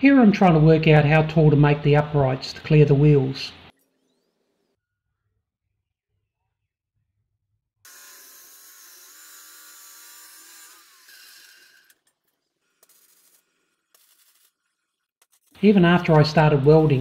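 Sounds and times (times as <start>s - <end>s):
power tool motor running: 7.9s - 14.6s.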